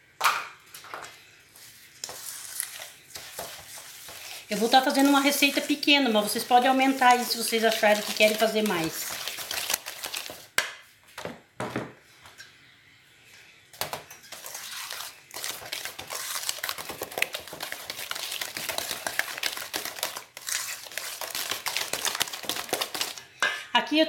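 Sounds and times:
wooden spoon scraping metal bowl: 1.6s - 10.4s, 14.2s - 23.2s.

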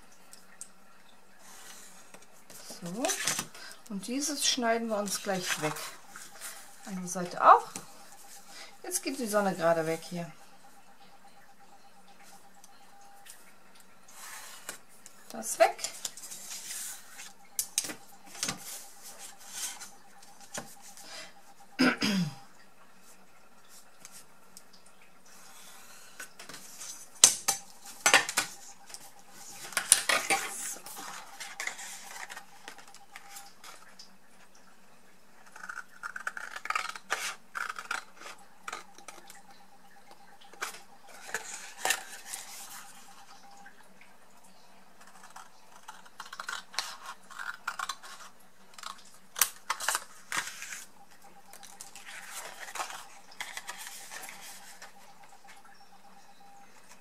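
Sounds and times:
card rustling: 25.9s - 33.9s, 40.6s - 43.3s, 45.2s - 55.6s.

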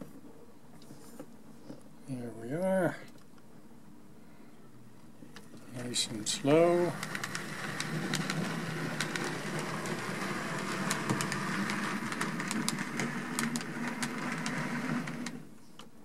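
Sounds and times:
wheels clicking over rails: 5.8s - 15.5s
model train motor whir: 6.4s - 15.4s.

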